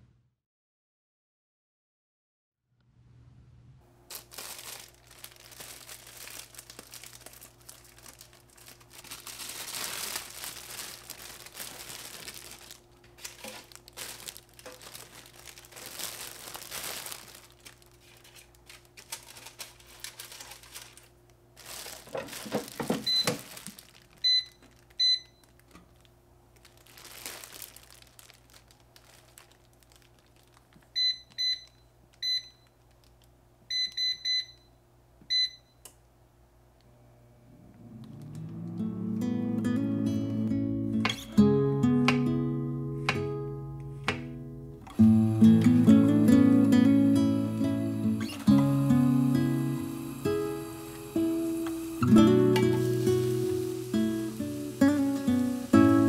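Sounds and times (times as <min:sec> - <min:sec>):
plastic bag crinkling: 0:04.1 - 0:33.4, 0:45.7 - 0:56.0
steady low hum: 0:36.0 - 0:56.0.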